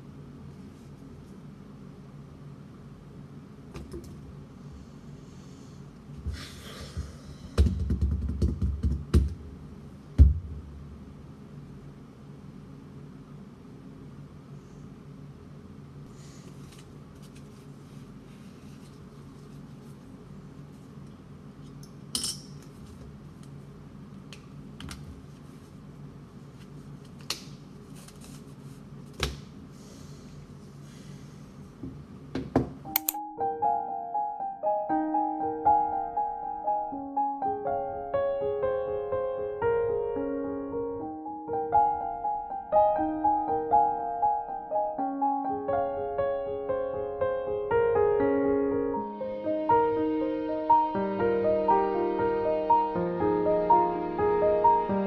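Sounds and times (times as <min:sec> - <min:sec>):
low room hum: 0:00.0 - 0:55.0
notebook and pen knocking on desk: 0:07.6 - 0:09.3
soft piano music: 0:32.8 - 0:55.0.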